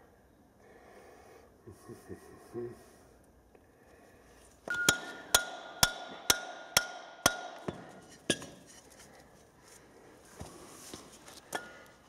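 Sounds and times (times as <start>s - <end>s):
hammer striking steel rod: 4.7s - 8.6s.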